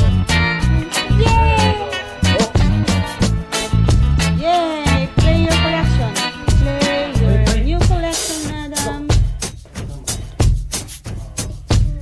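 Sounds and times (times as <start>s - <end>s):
heavy bass line: 0.0s - 8.0s
drum hits: 7.5s - 12.0s.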